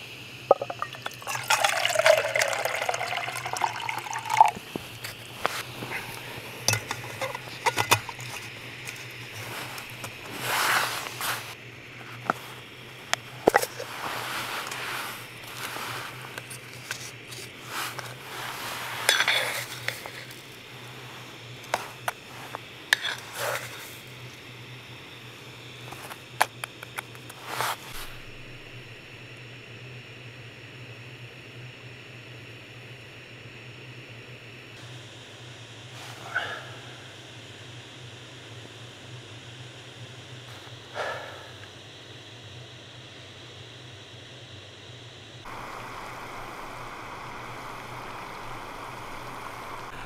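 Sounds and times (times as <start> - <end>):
hot water pouring into cup: 0.5 - 11.6, 13.1 - 24.4, 45.5 - 50.0
spoon scooping coffee: 0.5 - 11.6, 13.4 - 24.0.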